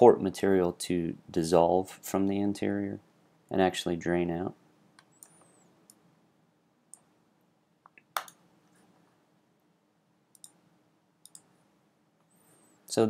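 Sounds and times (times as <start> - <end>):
faint room hiss: 0.0 - 13.0
computer mouse clicks: 5.0 - 6.0, 10.3 - 10.6, 11.2 - 11.5.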